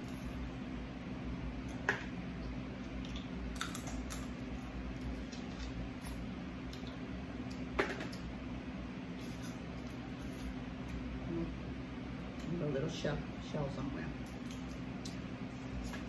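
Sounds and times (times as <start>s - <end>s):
soft eating sounds: 0.0s - 16.0s
steady low hum: 0.0s - 16.0s
crab shell cracking: 3.0s - 4.4s.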